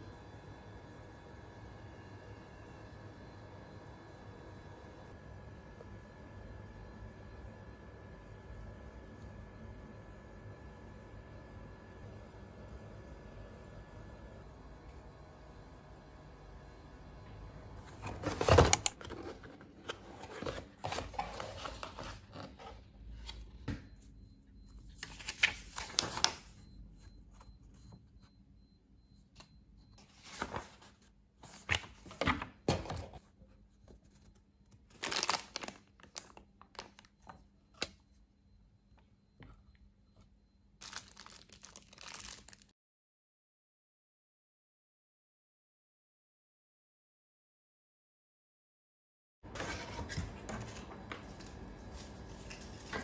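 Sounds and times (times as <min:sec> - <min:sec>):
plastic and paper crinkling: 0:18.0 - 0:22.9, 0:25.0 - 0:26.6, 0:30.0 - 0:32.3, 0:33.9 - 0:37.1, 0:40.8 - 0:42.7.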